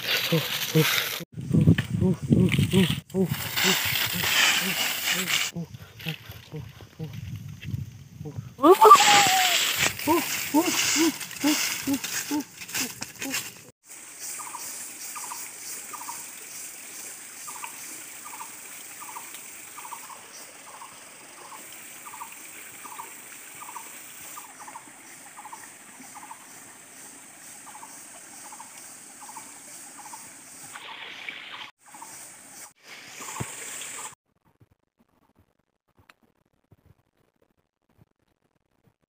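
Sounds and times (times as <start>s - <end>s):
high-pitched hiss: 8.7s - 13.0s, 13.9s - 24.4s.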